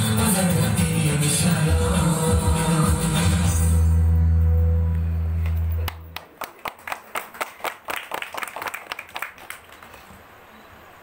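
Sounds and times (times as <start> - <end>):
audience clapping: 5.4 - 10.3.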